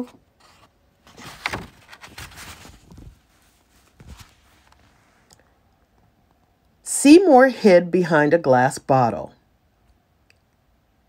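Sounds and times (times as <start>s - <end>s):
book pages rustling: 0.0s - 5.3s.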